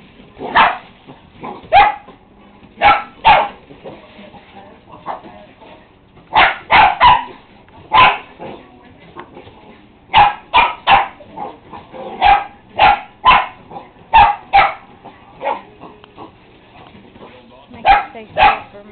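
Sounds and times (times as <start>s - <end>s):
dog barking: 0.4s - 2.2s, 2.8s - 3.6s, 5.0s - 5.3s, 6.3s - 8.5s, 10.1s - 16.0s, 17.8s - 18.7s.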